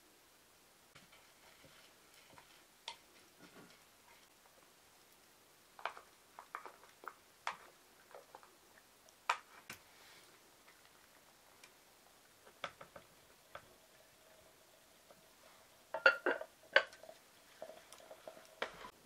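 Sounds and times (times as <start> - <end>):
bowl knocking: 16.0 - 17.0.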